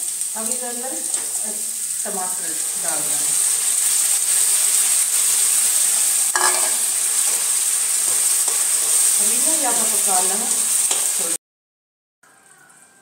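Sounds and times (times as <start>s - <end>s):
sizzling in hot oil: 0.0s - 11.4s.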